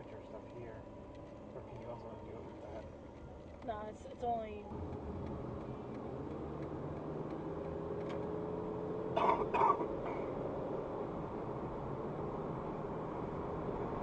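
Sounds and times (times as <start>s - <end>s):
car engine and road noise: 0.0s - 14.0s
person coughing: 9.2s - 10.2s.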